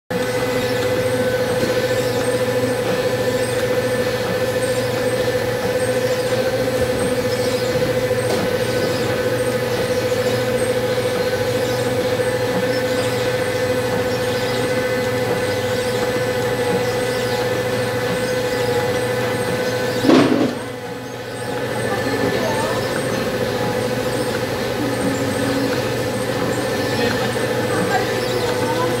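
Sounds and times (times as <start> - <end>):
machine motor hum: 0.1 - 29.0
faint regular ticking: 0.2 - 20.0.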